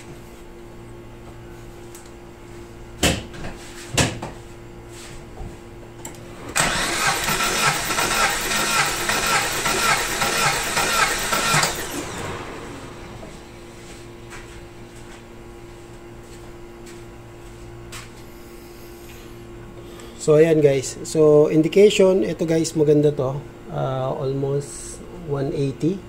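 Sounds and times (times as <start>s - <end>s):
engine cranking by starter: 6.5s - 13.1s.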